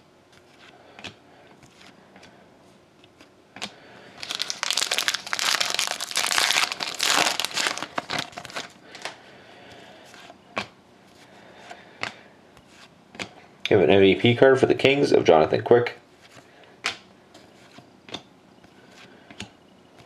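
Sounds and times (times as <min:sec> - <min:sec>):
cards shuffling clicks: 0:03.0 - 0:09.2
foil wrapper crinkling: 0:04.2 - 0:09.2.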